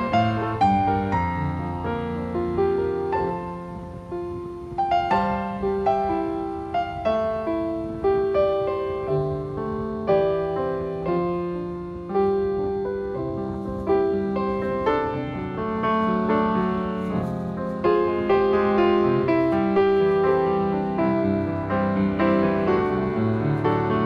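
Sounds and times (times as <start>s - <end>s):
piano music: 0.0s - 24.0s.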